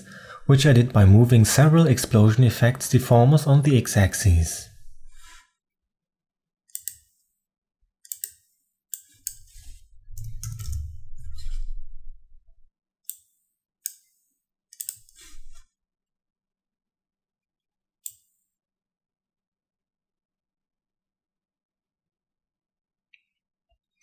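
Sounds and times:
mouse and keyboard clicking: 8.0s - 9.6s, 10.2s - 10.9s
dull low rumble: 10.0s - 12.7s.

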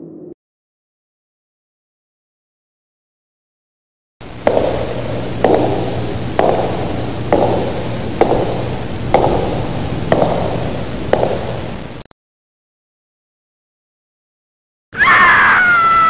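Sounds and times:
steady low hum: 4.2s - 12.1s.

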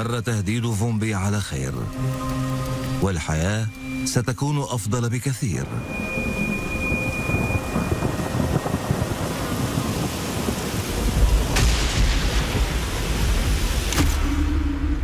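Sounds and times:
rain hissing: 5.7s - 14.4s
deep thunder rumbling: 6.0s - 15.0s
sharp thunder cracks: 7.8s - 14.5s.

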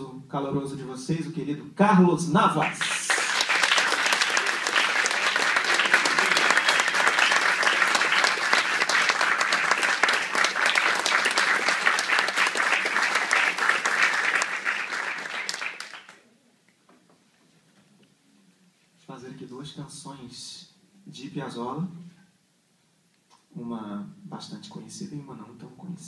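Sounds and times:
audience applauding: 2.6s - 16.2s.

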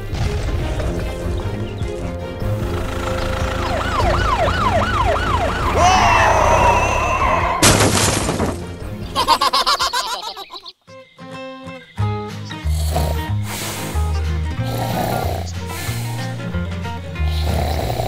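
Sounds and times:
background music: 0.0s - 18.0s
siren wailing up and down: 3.2s - 7.6s.

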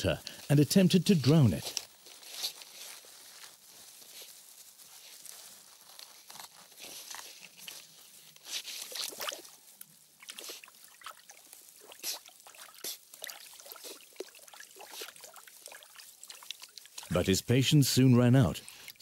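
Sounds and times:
animal splashing in shallow water: 7.5s - 17.1s.

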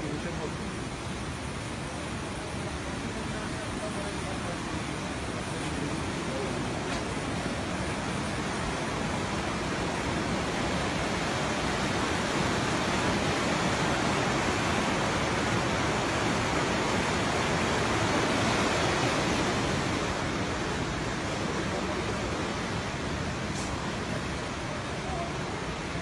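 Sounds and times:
rushing floodwater: 0.0s - 26.0s.

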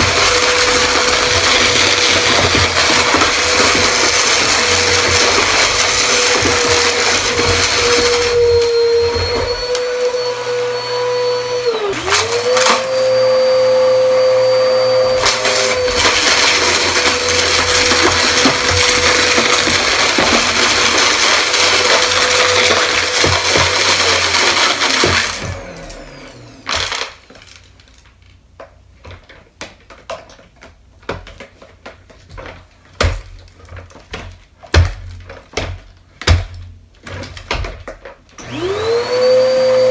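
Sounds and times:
upright vacuum cleaner running: 0.0s - 27.0s, 38.4s - 39.9s
vacuum motor winding down: 0.1s - 26.7s, 38.4s - 39.9s.

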